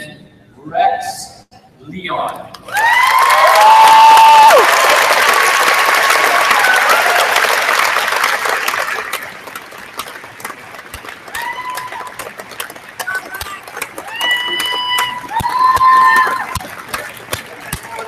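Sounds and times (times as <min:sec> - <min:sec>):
cheers: 0:02.7 - 0:09.2, 0:11.3 - 0:12.4, 0:13.0 - 0:17.0
audience applauding: 0:02.7 - 0:18.0.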